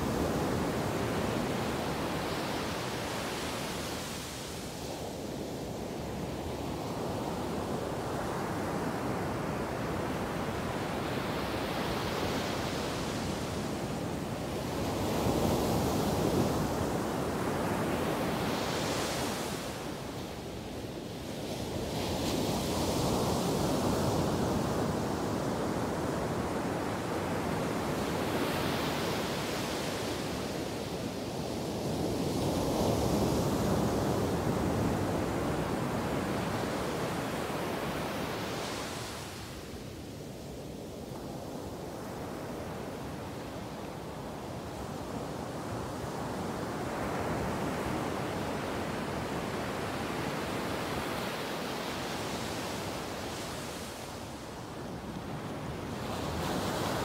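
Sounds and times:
ocean waves breaking on beach: 0.0s - 57.0s.

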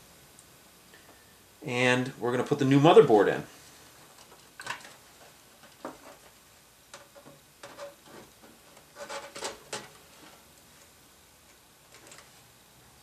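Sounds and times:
circuit board rubbing against case: 7.6s - 9.6s.

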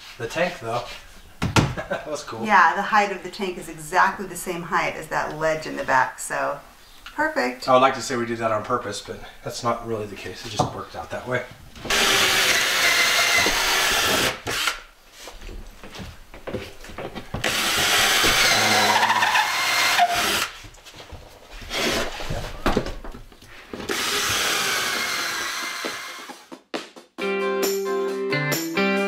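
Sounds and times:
cordless drill boring into wood: 11.9s - 14.8s, 17.4s - 20.6s, 23.9s - 26.5s.

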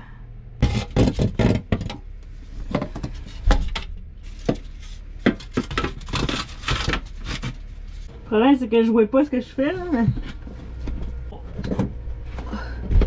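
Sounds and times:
low steady hum: 0.0s - 13.0s
knocks bumps and rustles: 0.6s - 8.1s.

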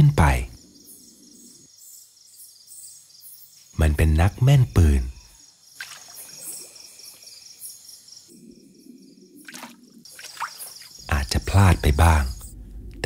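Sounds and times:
crickets chirping: 0.0s - 13.0s
sharp water splash: 5.8s - 6.5s, 9.4s - 11.0s
water trickling and dripping: 9.4s - 11.1s.

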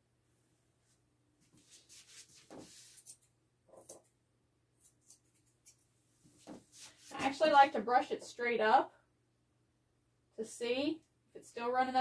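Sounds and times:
comb scratching through fur: 1.5s - 3.2s, 5.0s - 7.5s.

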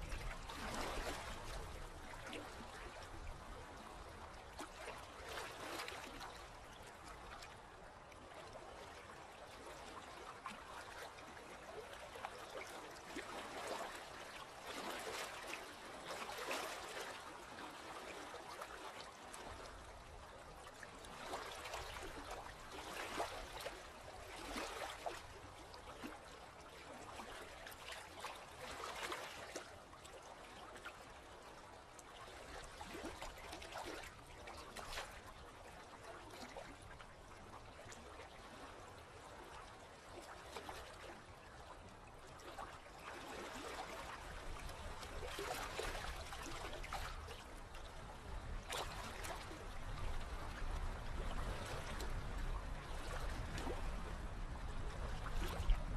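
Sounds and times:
sea water lapping and trickling: 0.0s - 55.9s.

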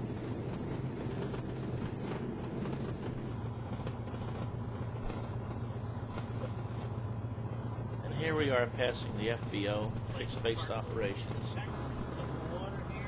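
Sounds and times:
aircraft engine and propeller: 0.0s - 13.0s.

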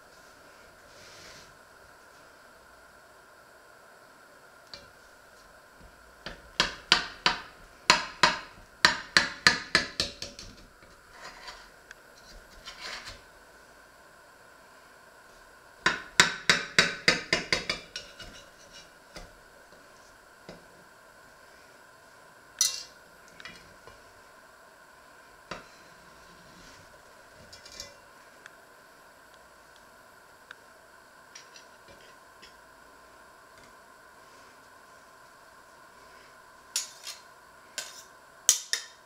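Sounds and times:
knife scraping inside metal pot: 11.1s - 13.2s.

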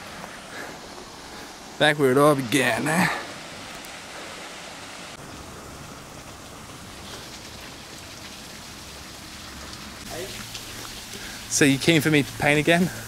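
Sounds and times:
waterfall splashing into pool: 6.3s - 13.0s.

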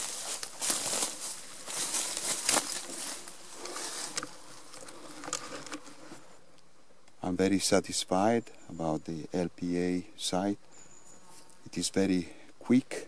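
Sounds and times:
footsteps crunching dry leaves: 0.0s - 5.6s
faint steady buzz: 0.0s - 13.0s.

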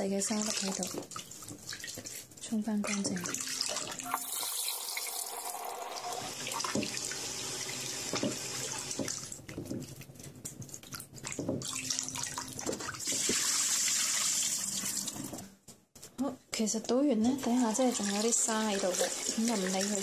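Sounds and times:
tap water running into a pot: 0.0s - 2.0s, 2.9s - 9.4s, 11.3s - 15.4s, 17.4s - 20.0s
water pouring into a sink: 0.0s - 2.0s, 2.9s - 9.4s, 11.2s - 15.4s, 17.4s - 20.0s
water splashing: 0.2s - 5.3s.

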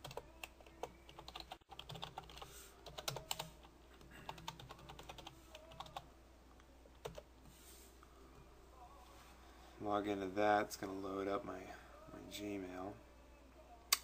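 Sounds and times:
computer keyboard typing: 0.0s - 3.6s, 4.3s - 6.0s, 7.0s - 7.2s.

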